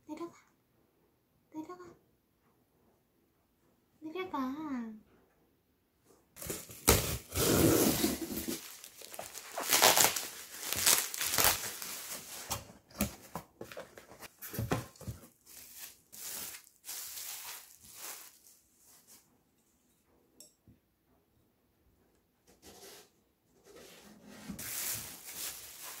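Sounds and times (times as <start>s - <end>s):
packaging tearing: 6.4s - 12.6s, 15.5s - 18.5s, 24.6s - 26.0s
bubble wrap rustling and crinkling: 6.4s - 19.3s, 24.5s - 26.0s.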